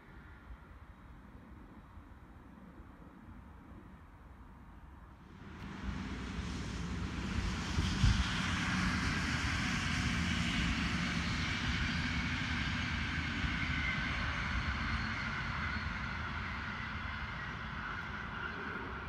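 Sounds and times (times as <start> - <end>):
faint high whine: 0.0 - 19.0
train wheels rumbling on rails: 5.3 - 19.0.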